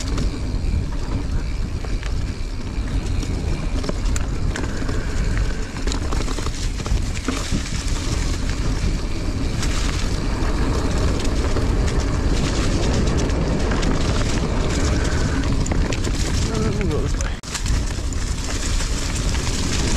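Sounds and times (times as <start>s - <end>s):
bike clicks and rattles: 0.0s - 19.9s
wind rumble on microphone: 0.0s - 19.9s.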